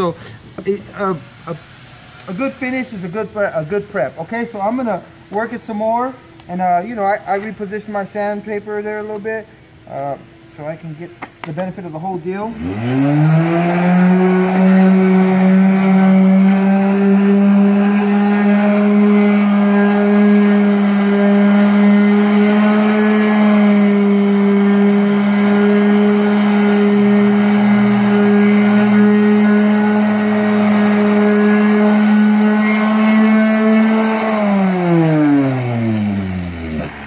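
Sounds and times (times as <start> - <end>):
orbital sander on metal: 12.4 - 37.0.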